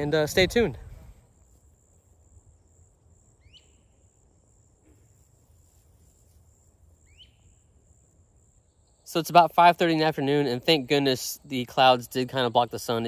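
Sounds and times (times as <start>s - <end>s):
low wind rumble: 0.0s - 1.4s
high-pitched insect trill: 1.2s - 10.6s.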